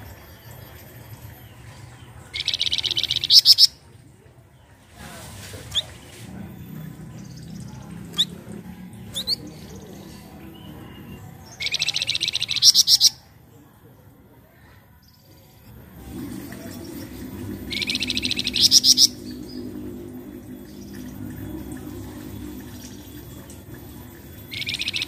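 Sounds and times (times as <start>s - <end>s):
bird buzzy rattle call: 2.3s - 3.8s, 15.9s - 25.0s.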